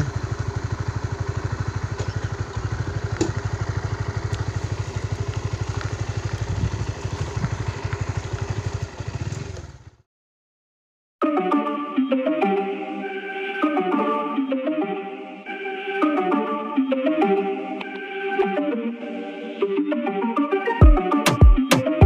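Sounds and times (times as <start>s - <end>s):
motorcycle engine putter: 0.0s - 9.9s
music: 11.2s - 22.0s.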